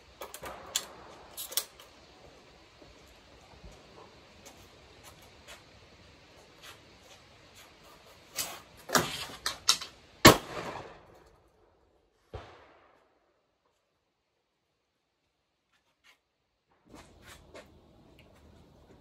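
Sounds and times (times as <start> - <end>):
shotgun shots: 10.2 - 11.2.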